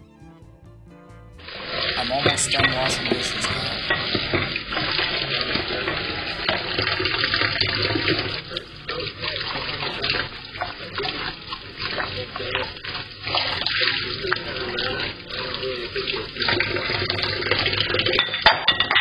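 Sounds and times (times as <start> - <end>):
water splashing off dishes: 2.2 - 19.0
faucet running into steel sink: 3.9 - 18.4.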